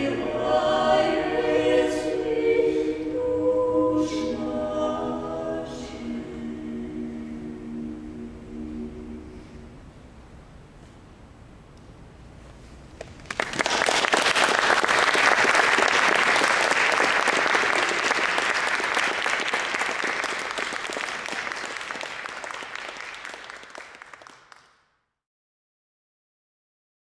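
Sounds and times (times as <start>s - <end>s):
audience applauding: 13.0s - 24.8s.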